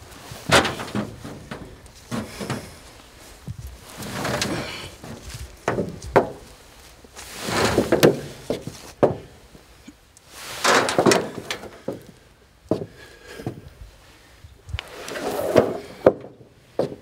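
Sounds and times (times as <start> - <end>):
body scraping on ramp: 0.2 - 9.3, 14.8 - 17.0
knocks on metal and boards: 5.6 - 6.4, 7.8 - 9.3.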